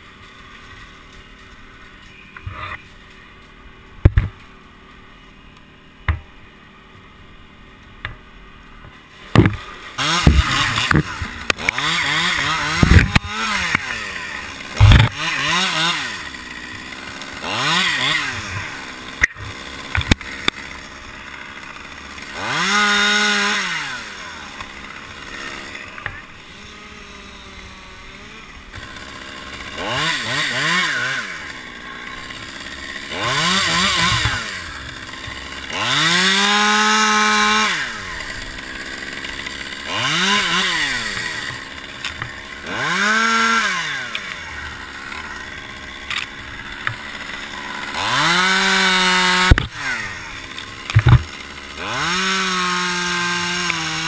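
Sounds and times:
chainsaw revving: 0:08.6 - 0:54.0
sharp knocks: 0:09.3 - 0:09.6, 0:10.2 - 0:11.7, 0:14.8 - 0:15.2, 0:50.9 - 0:51.3.

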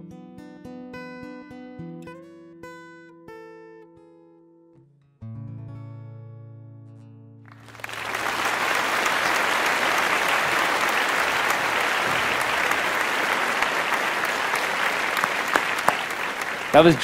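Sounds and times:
applause: 0:07.5 - 0:17.0.

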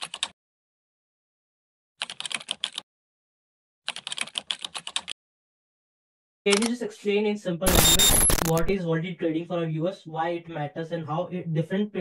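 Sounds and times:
rapid keyboard typing clicks: 0:00.0 - 0:00.3, 0:02.0 - 0:02.8, 0:03.9 - 0:05.2.

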